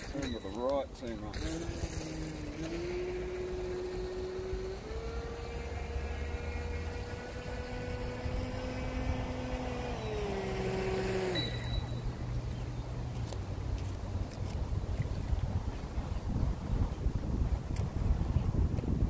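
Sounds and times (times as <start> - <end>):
model boat motor whining: 0.0 - 13.4.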